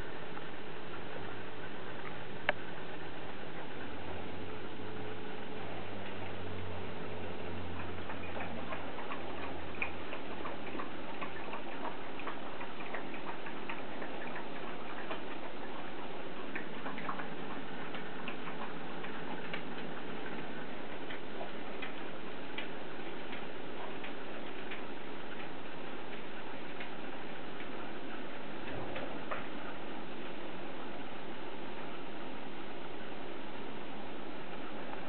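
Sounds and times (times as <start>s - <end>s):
steady hiss: 0.0s - 35.0s
dog gnawing a chew: 7.3s - 30.4s.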